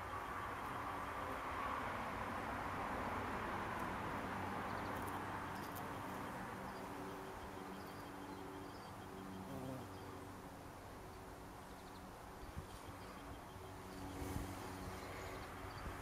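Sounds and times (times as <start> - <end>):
outdoor background rush: 0.0 - 16.0
bee buzzing: 9.2 - 10.2.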